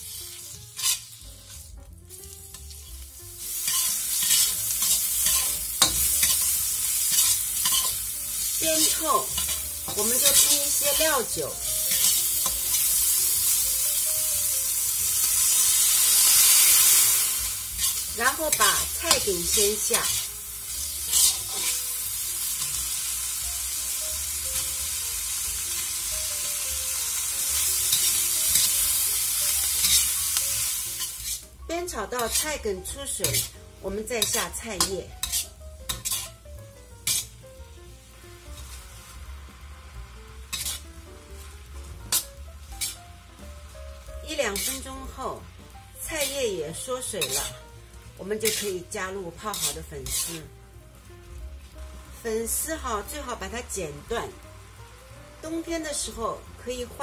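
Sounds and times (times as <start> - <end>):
spatula scraping a wok: 0.0 - 13.6, 15.2 - 23.1, 27.5 - 37.4, 38.1 - 39.4, 40.4 - 43.4, 44.0 - 45.4, 46.0 - 47.7, 48.3 - 50.5
meat sizzling in oil: 0.0 - 57.0.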